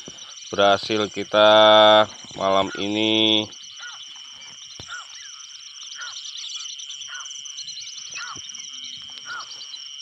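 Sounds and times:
insect buzz and chirping: 0:00.0 - 0:10.0
short insect call: 0:00.0 - 0:10.0.

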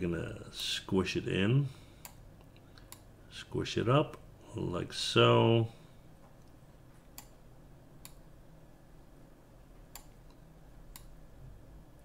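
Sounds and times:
faint low hum: 0:00.0 - 0:12.0
computer mouse clicks: 0:06.4 - 0:07.4, 0:09.9 - 0:11.2.

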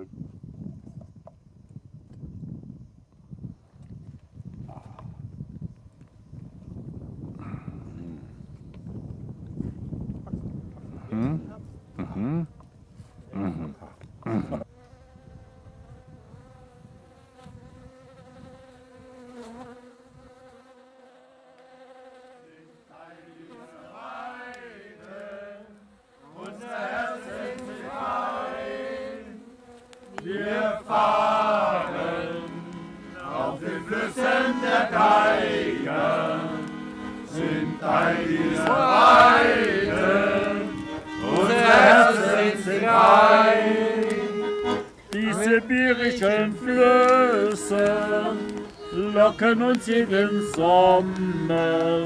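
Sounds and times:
steady buzzing hum: 0:14.6 - 0:52.0.

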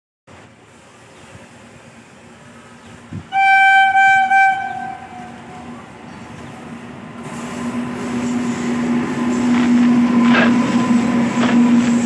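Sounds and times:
train rumble: 0:00.3 - 0:12.0
locomotive horn blasts: 0:03.3 - 0:05.8.

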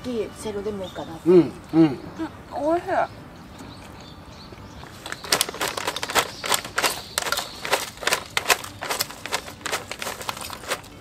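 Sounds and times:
potato chips crunching: 0:05.2 - 0:11.0.

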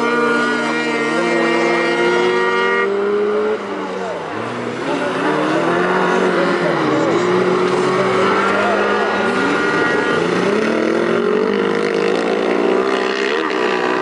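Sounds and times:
buggy engines revving: 0:00.0 - 0:14.0.

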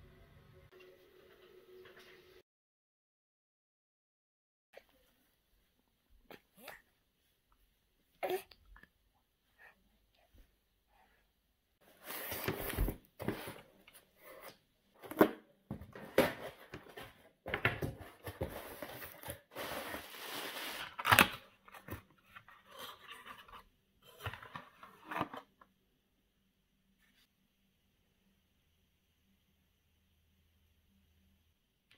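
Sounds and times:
paperboard carton opening: 0:15.0 - 0:25.5
packaging rustling: 0:17.8 - 0:22.0.

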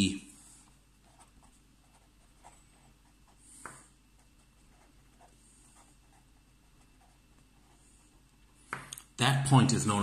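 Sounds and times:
pen scratching on paper: 0:01.0 - 0:08.2.

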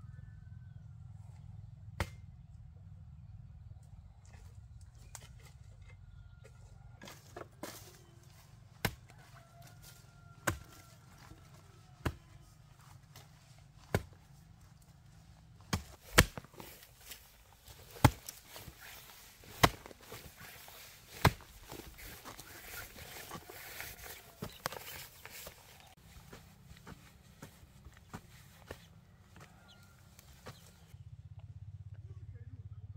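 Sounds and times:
hand tool striking: 0:15.7 - 0:24.2.

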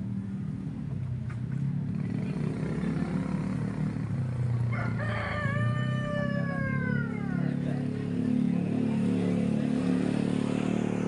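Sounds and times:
rooster crowing: 0:04.7 - 0:07.6.

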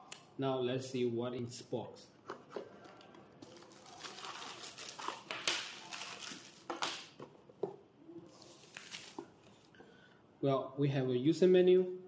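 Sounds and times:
plastic bag crinkling: 0:03.4 - 0:07.2.

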